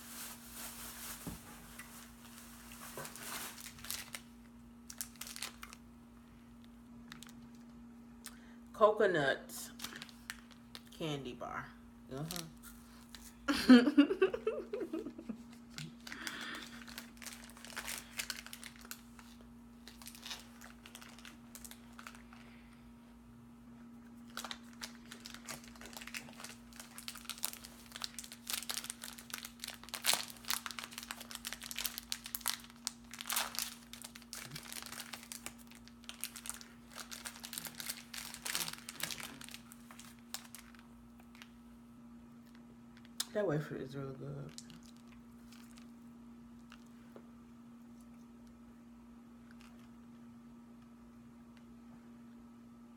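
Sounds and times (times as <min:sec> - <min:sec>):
plastic wrapper crinkling: 0:00.0 - 0:05.9, 0:06.6 - 0:07.8, 0:09.7 - 0:11.0, 0:12.2 - 0:13.4, 0:14.9 - 0:22.6, 0:24.1 - 0:41.6, 0:44.4 - 0:46.0
faint low hum: 0:00.0 - 0:52.9.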